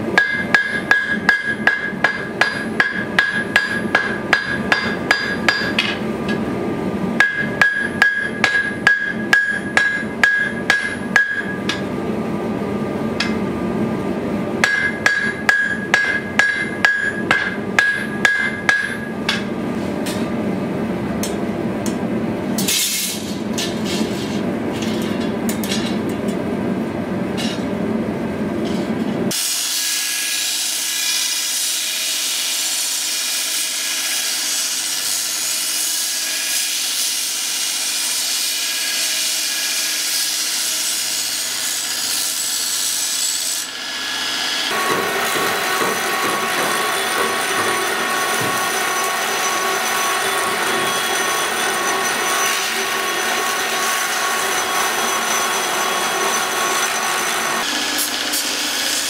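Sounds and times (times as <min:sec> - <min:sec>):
hammer striking blade on anvil: 0:00.2 - 0:06.4, 0:07.2 - 0:11.9, 0:14.6 - 0:19.5, 0:27.4 - 0:27.7, 0:44.7 - 0:58.6
anvil ringing: 0:07.2 - 0:11.8, 0:14.6 - 0:19.4, 0:44.7 - 0:53.5
belt grinder grinding: 0:43.6 - 0:59.0.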